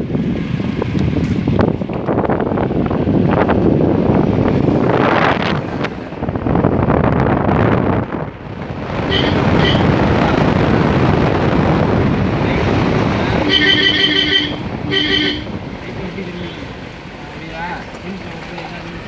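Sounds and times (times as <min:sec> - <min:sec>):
wind rushing over microphone: 0:00.0 - 0:17.8
vehicle driving: 0:00.0 - 0:19.0
car horn beeping: 0:09.0 - 0:10.0, 0:13.4 - 0:15.6.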